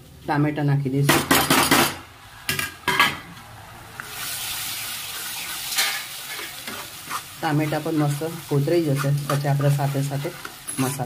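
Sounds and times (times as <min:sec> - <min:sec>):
tomato sizzling in hot oil: 0:03.8 - 0:11.0
steel spoon scraping a pan: 0:05.2 - 0:11.0.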